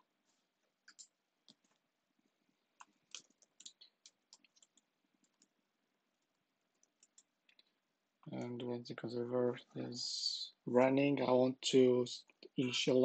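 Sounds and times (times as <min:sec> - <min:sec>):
faint keyboard typing: 0:00.0 - 0:08.6.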